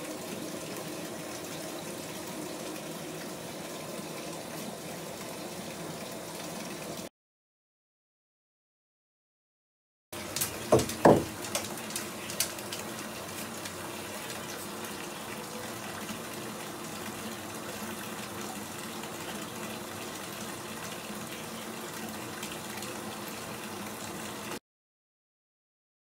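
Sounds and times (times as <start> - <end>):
bathtub tap running: 10.2 - 15.0.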